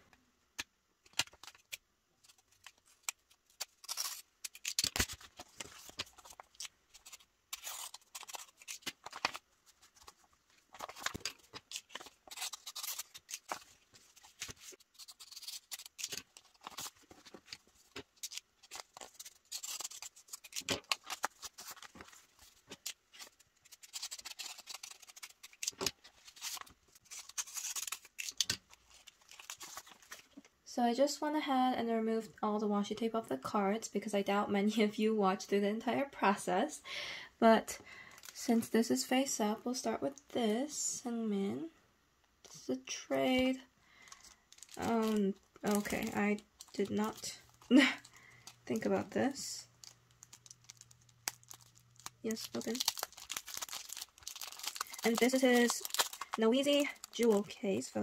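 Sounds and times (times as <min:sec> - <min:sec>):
paper envelopes rustling: 0:01.1 - 0:30.4, 0:44.0 - 0:49.0, 0:49.8 - 0:57.6.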